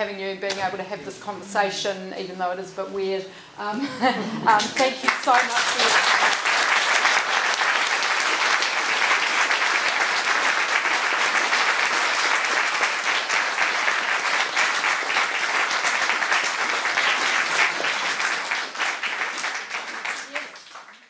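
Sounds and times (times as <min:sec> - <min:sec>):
audience applauding: 0:04.5 - 0:21.0.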